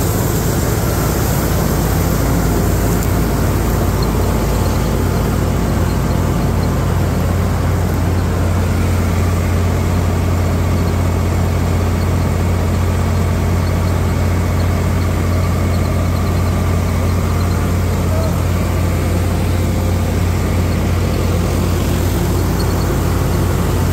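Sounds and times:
thresher working: 0.0 - 23.9
tractor diesel engine running: 0.0 - 23.9.

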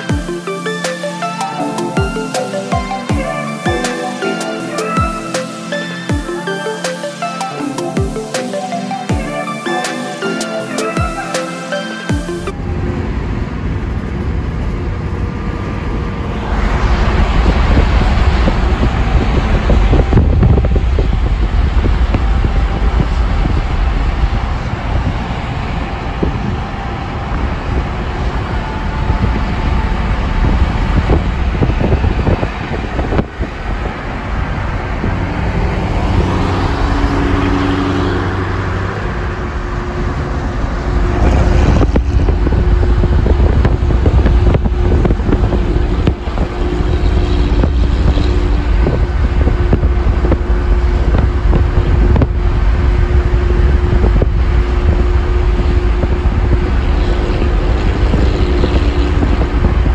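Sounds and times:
car engine and road rumble: 12.2 - 59.9.

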